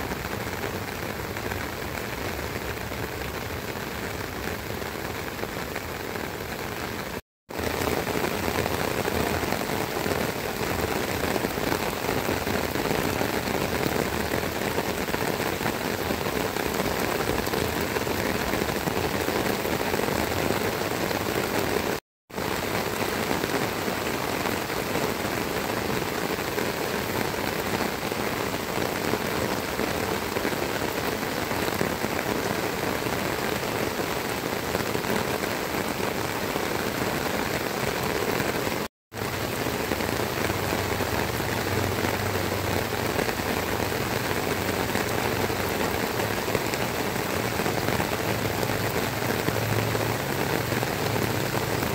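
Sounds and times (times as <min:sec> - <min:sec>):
heavy rain falling: 0:00.0 - 0:51.9.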